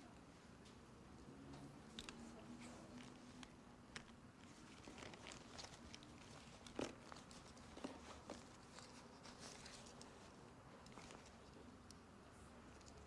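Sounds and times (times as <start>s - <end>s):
hands rummaging through canvas bag: 2.0s - 11.5s.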